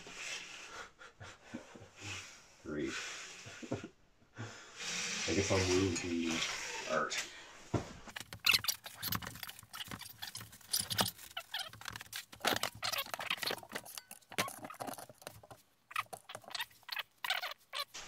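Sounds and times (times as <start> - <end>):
paper prints rustling: 8.1 - 18.0.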